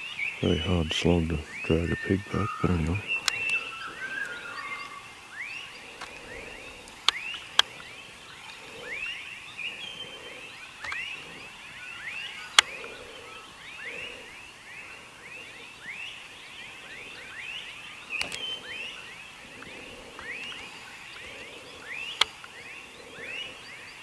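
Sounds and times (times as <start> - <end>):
frogs chirping: 0.0 - 24.0
sharp clicks: 2.6 - 4.4, 10.8 - 11.2, 18.1 - 18.5.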